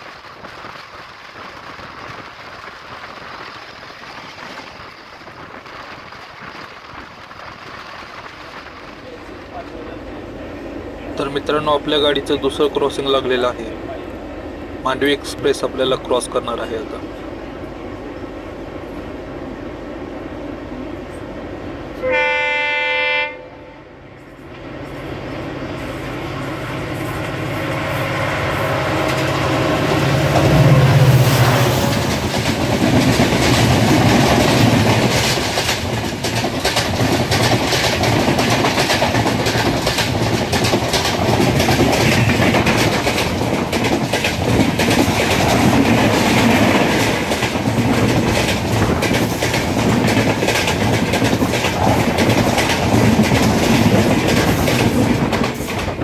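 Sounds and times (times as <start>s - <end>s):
express train rumble: 0.0s - 56.0s
train horn blast: 22.0s - 23.9s, 27.5s - 31.9s
train wheels clattering over rail joints: 28.9s - 56.0s.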